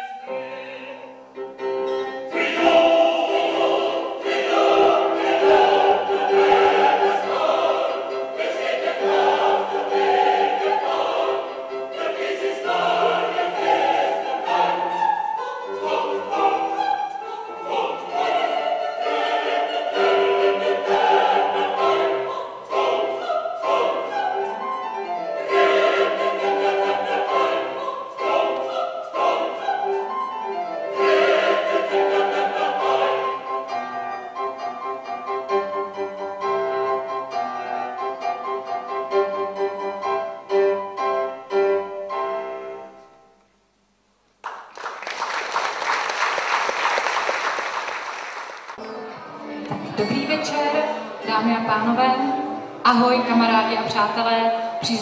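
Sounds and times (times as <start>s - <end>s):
operatic singing: 0.0s - 1.4s, 2.2s - 34.0s
piano accompaniment: 0.0s - 43.4s, 48.7s - 54.9s
applause: 44.4s - 48.8s.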